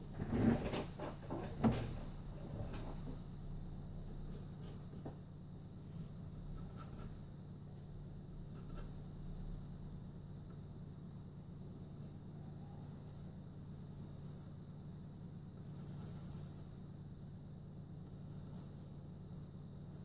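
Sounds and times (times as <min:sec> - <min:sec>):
low steady hum: 0:00.0 - 0:20.0
pencil sketching on paper: 0:04.1 - 0:05.0, 0:05.8 - 0:07.3, 0:15.6 - 0:16.7.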